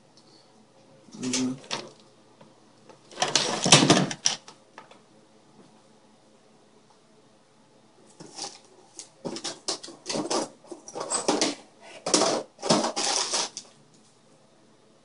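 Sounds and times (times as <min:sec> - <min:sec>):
rummaging through tools: 0:08.2 - 0:13.8.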